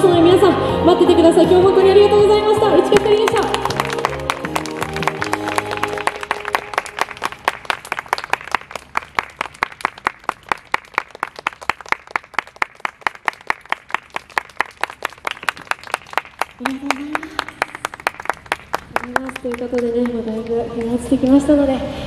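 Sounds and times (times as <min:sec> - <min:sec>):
small audience applauding: 0:03.0 - 0:20.2.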